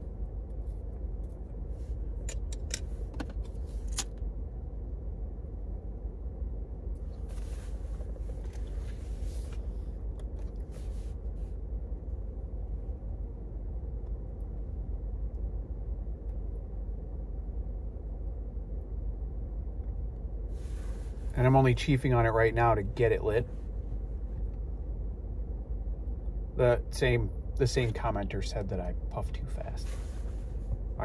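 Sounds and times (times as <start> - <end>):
car cabin rumble: 0.0 - 31.0
soft hissing puffs: 7.2 - 10.0, 20.5 - 21.4, 29.7 - 30.8.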